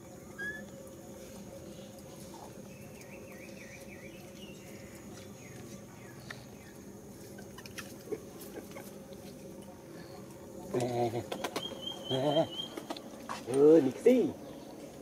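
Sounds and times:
steady low hum: 0.0s - 15.0s
small animal chirping: 0.3s - 0.8s.

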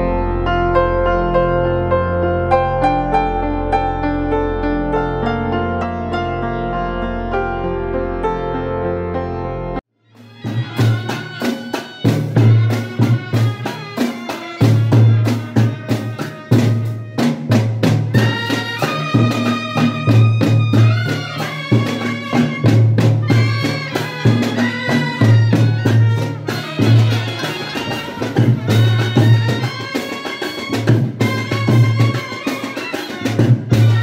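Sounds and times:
trumpets playing melody: 0.0s - 8.5s, 10.0s - 34.0s
drums beating steady rhythm: 10.1s - 34.0s.

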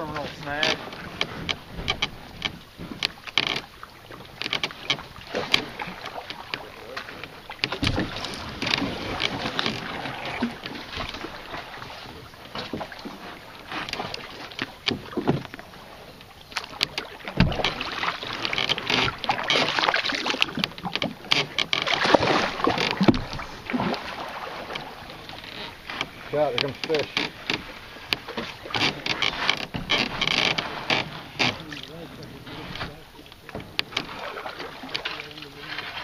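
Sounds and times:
paddle splashing in water: 0.0s - 36.0s
sharp clicks and knocks: 0.1s - 3.7s, 4.4s - 11.2s, 24.7s - 31.7s.

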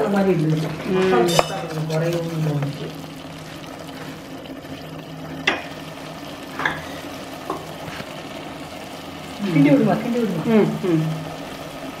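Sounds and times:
food sizzling in a pot: 0.0s - 12.0s
ladle knocking against pot: 1.3s - 1.7s, 6.6s - 6.8s.

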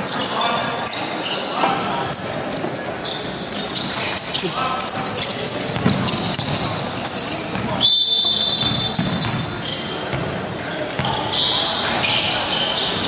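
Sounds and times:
voices: 0.0s - 13.0s
ball bouncing on court: 5.6s - 6.8s, 8.5s - 11.4s
referee's whistle blast: 7.8s - 9.0s.

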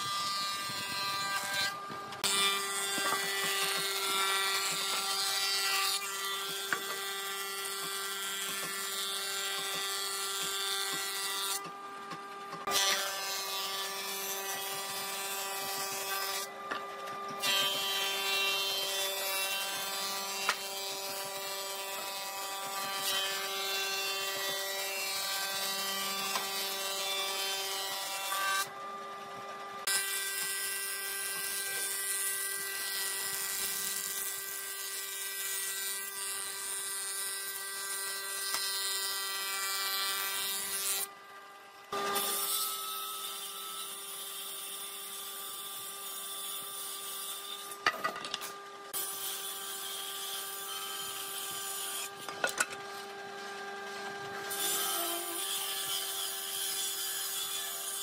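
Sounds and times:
cutterhead shaving wood: 0.0s - 29.0s
woodworking planer humming: 0.0s - 43.8s, 47.6s - 58.0s.

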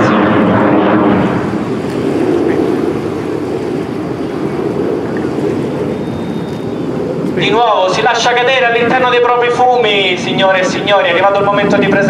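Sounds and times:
distant jet rumble: 0.0s - 12.0s
wind noise on microphone: 0.0s - 12.0s.

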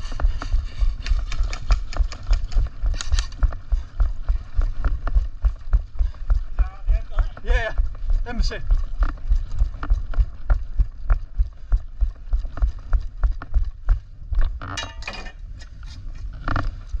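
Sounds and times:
footsteps on tarmac: 0.0s - 14.7s
small clicks: 1.0s - 3.4s.

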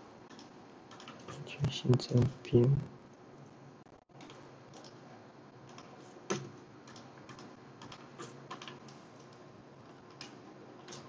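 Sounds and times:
keyboard and mouse clicks: 0.3s - 2.3s, 4.2s - 5.0s, 5.7s - 11.0s.

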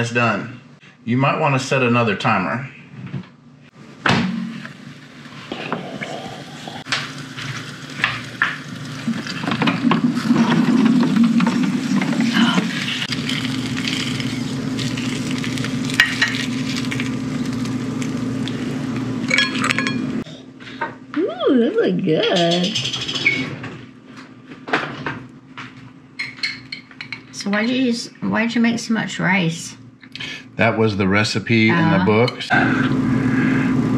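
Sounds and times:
chicken sizzling in a dish: 4.4s - 20.2s
steady low hum: 27.1s - 33.9s.

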